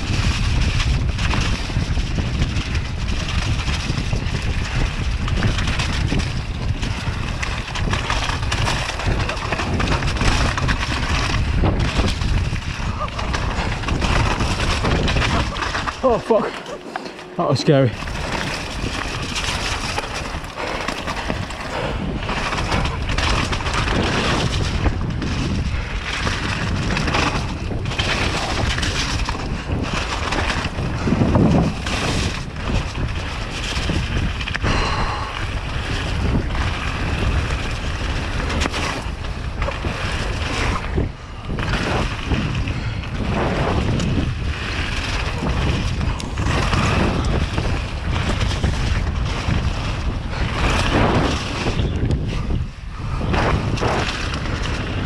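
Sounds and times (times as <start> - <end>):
wind rumble on microphone: 0.0 - 16.8, 17.7 - 55.0
tyres crunching on loose stones: 0.0 - 55.0.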